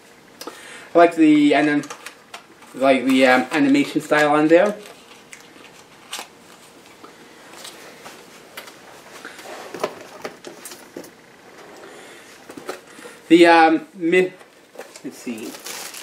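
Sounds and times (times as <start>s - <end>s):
packaging rustling: 1.8s - 6.9s, 14.7s - 16.0s.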